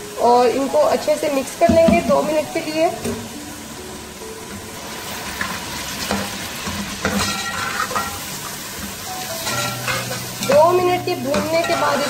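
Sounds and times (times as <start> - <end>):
onions sizzling in oil: 0.0 - 12.0
spoon scraping a pot: 7.0 - 8.3, 9.4 - 12.0.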